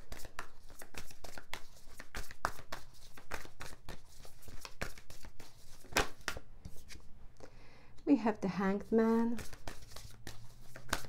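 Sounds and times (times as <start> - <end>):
cards being shuffled: 0.0 - 7.1, 9.2 - 11.0.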